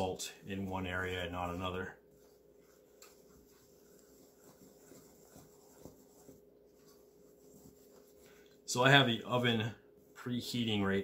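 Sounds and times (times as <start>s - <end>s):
wooden spoon stirring flour in bowl: 0.0s - 8.8s.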